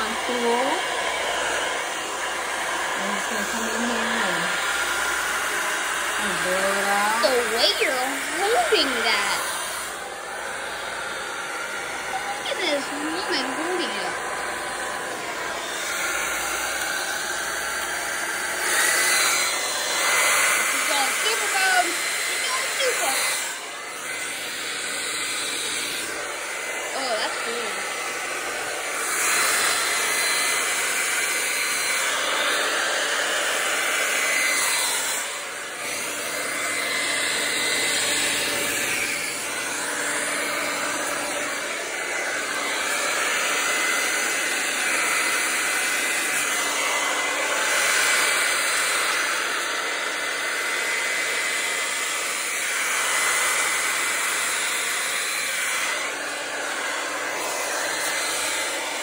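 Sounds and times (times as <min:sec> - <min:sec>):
hair dryer blowing air: 0:00.0 - 0:59.0.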